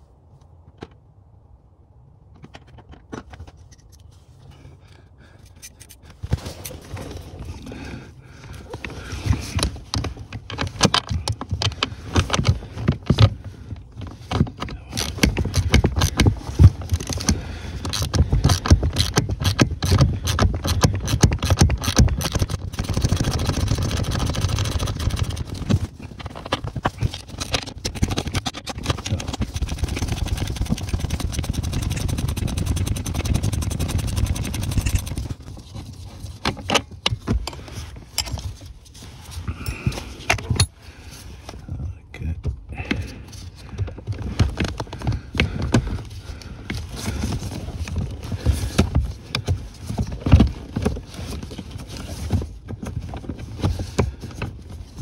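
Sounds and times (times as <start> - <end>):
tool knocking and scraping metal: 14.0 - 23.7
ratchet wrench clicking: 17.9 - 22.6.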